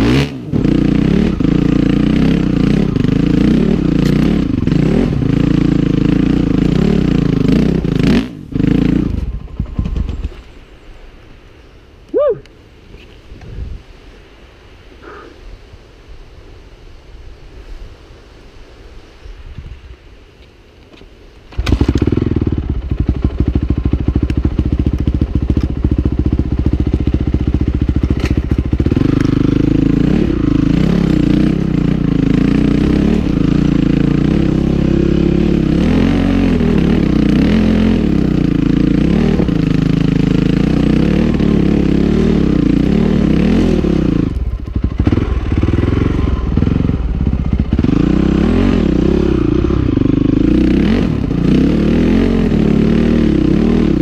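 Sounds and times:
dirt bike engine revving: 0.0s - 10.3s, 21.5s - 54.0s.

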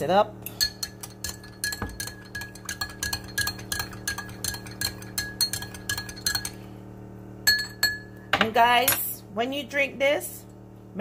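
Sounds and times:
spoon clinking in glass: 0.5s - 6.6s, 7.5s - 9.0s.

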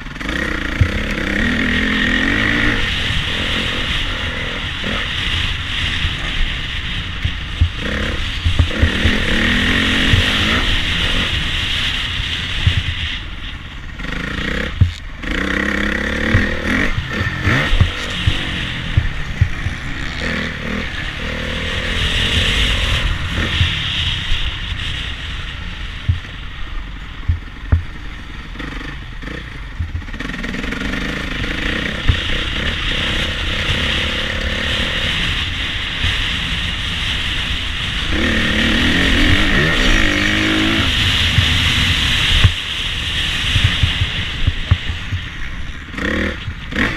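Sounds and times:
motocross bike engine revving: 0.0s - 46.9s
wind on microphone: 0.0s - 46.9s.

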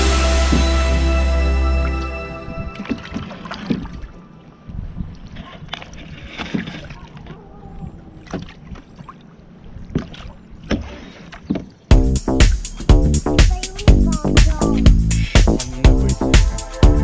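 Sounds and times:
water rumbling against hull: 0.0s - 17.0s
paddle splashing in water: 1.7s - 11.9s.

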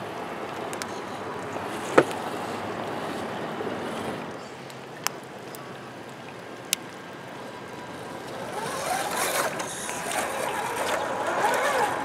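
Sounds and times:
stream running over rocks: 0.0s - 12.0s
toy car electric motor whine: 8.4s - 12.0s.

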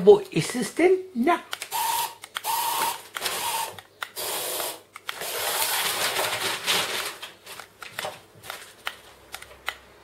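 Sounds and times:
toy car motor whining: 1.8s - 4.8s
packing paper rustling and crackling: 5.2s - 9.2s.

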